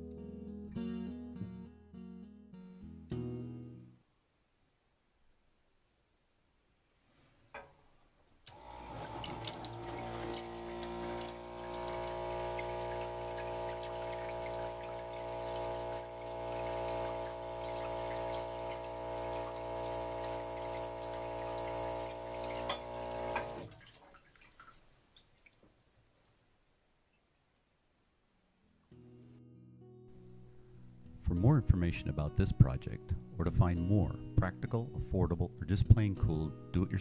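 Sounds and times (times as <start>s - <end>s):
pump hum: 8.5s - 24.1s
water pouring into a metal sink: 8.5s - 25.6s.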